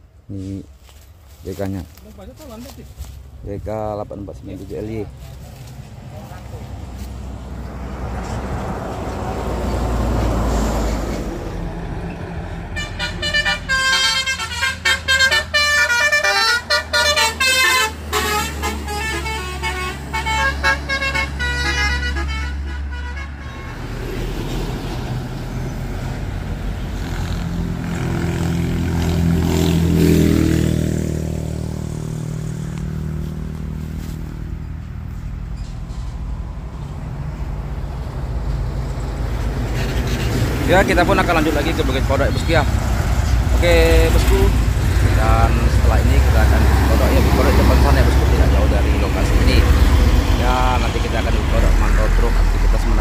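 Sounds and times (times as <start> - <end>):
heavy road traffic rumble: 0.0 - 53.0
multi-tone vehicle horn: 12.7 - 24.2
engine passing close: 23.7 - 53.0.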